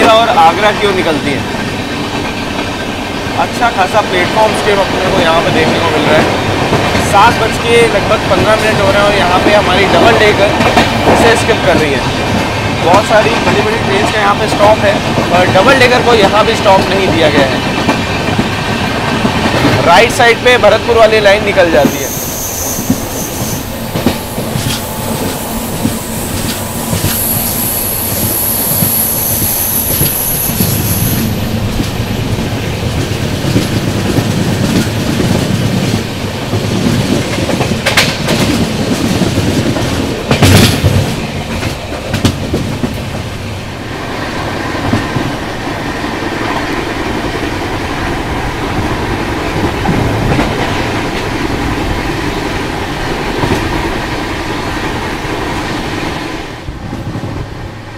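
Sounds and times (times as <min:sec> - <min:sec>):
sharp rail clacks: 0:00.0 - 0:43.3
train wheels rumbling on track: 0:00.0 - 0:57.9
high wheel squeal: 0:21.7 - 0:32.2.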